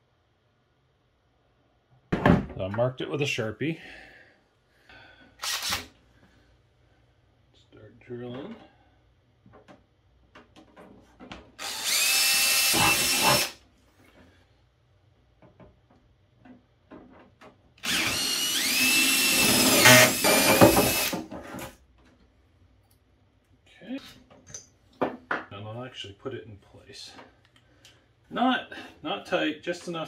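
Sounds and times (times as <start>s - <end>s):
cordless drill boring: 5.4s - 5.9s, 11.6s - 13.6s, 17.8s - 21.2s.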